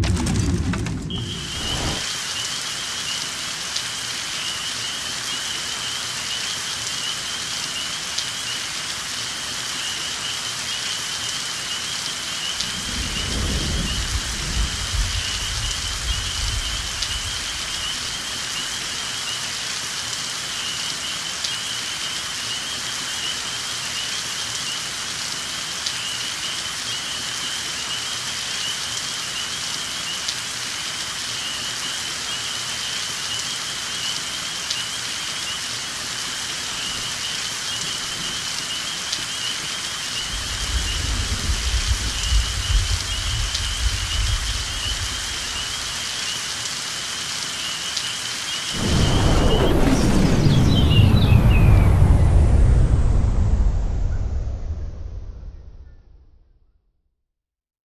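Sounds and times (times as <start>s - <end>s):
thunder rumbling: 0.0s - 2.0s, 12.6s - 18.4s, 40.2s - 46.0s, 48.8s - 56.5s
rain falling on water: 0.0s - 52.2s.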